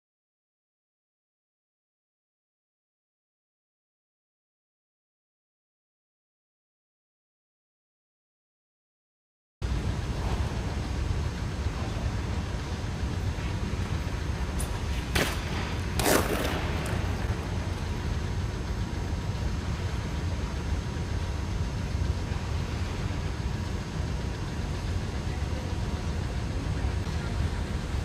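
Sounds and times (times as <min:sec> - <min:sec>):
low rumble of ice rink: 0:09.6 - 0:28.0
skate blades scraping ice: 0:14.5 - 0:17.9.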